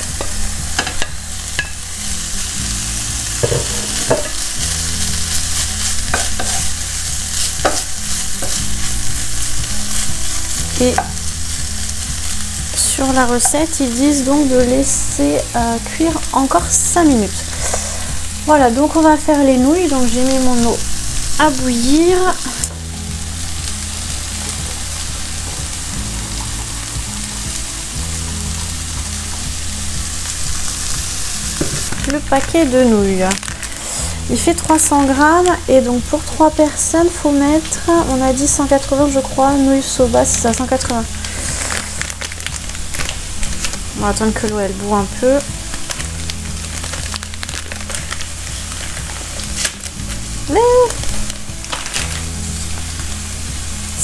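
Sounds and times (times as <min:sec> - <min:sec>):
food sizzling in frying pan: 0:00.0 - 0:54.0
spatula scraping pan: 0:05.3 - 0:08.6, 0:17.4 - 0:18.3.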